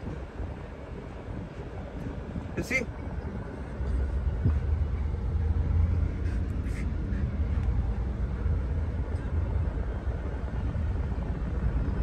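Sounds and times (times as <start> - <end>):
traffic rumble inside car: 0.0 - 12.0.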